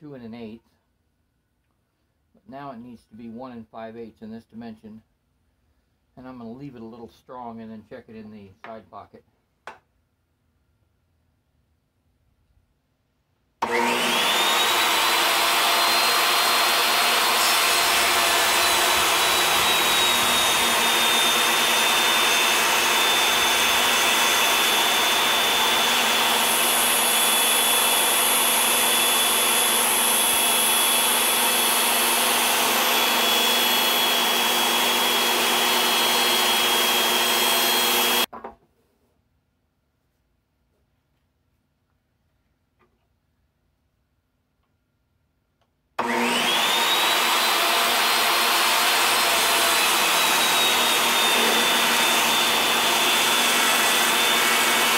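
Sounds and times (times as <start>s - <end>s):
saw blade cutting wood: 13.6s - 38.3s, 46.0s - 54.9s
table saw motor whining: 13.6s - 38.3s, 46.0s - 54.9s.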